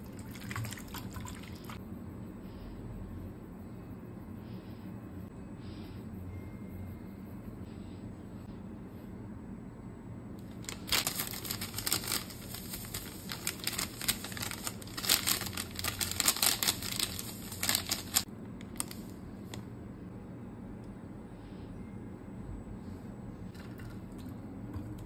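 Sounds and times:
sachet crinkling: 10.4 - 19.6
powder shaken out: 10.5 - 19.1.

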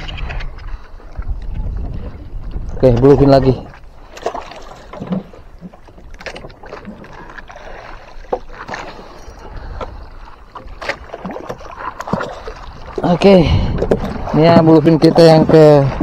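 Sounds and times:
water slapping against boat hull: 0.0 - 16.0.

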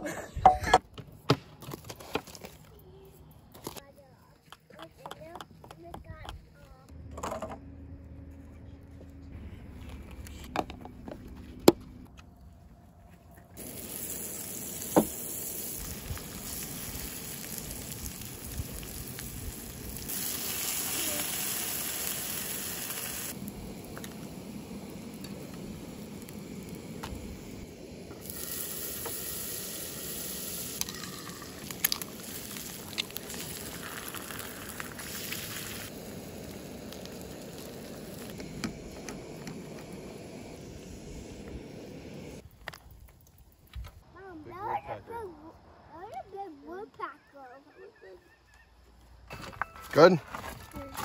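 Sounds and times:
eggs sizzling in frying pan: 13.6 - 42.8.

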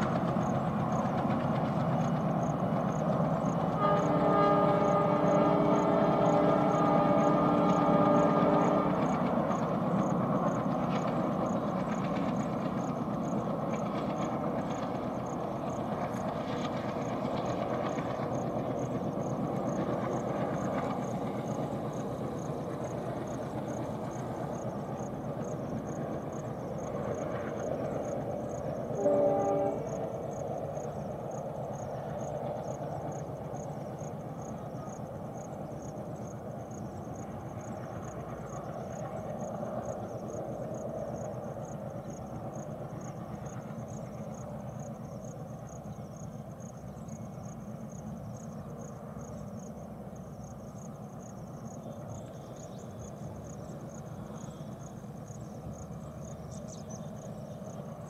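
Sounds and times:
distant diesel train rumble: 0.0 - 58.0
train horn blast: 3.7 - 9.2, 28.9 - 30.1.

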